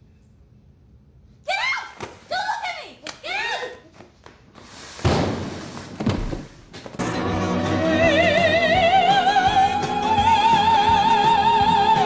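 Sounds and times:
soprano singing opera: 0:07.2 - 0:12.0.

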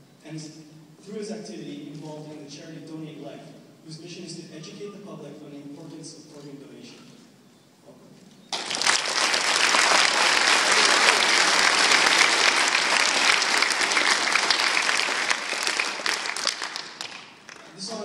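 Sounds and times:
crowd applauding: 0:08.5 - 0:17.8.

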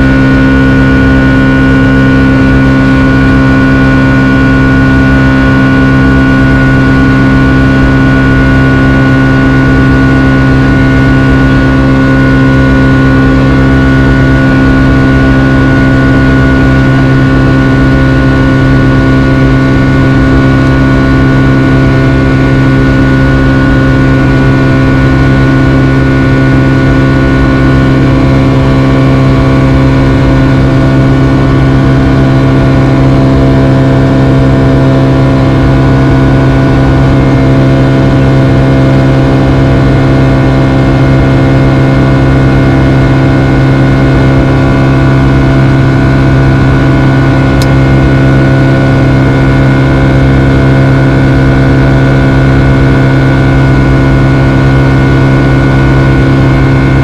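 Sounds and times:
jet engine drone in cabin: 0:00.0 - 0:57.0
steady whining tones: 0:00.0 - 0:57.0.

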